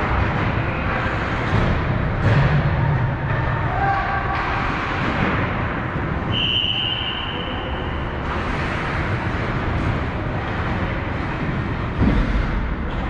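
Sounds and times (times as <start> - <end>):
ice rink din: 0.0 - 13.0
referee's whistle blown: 6.3 - 7.7.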